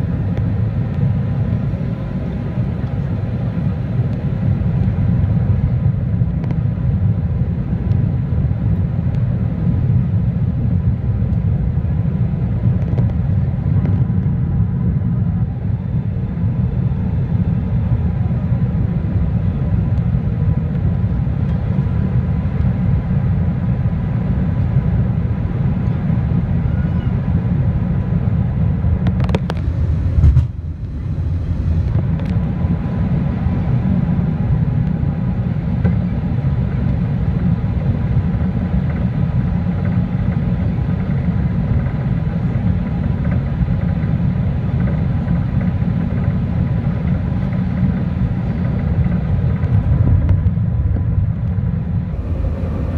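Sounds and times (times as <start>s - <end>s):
airplane cabin rumble: 0.0s - 52.9s
short knock: 30.0s - 30.6s.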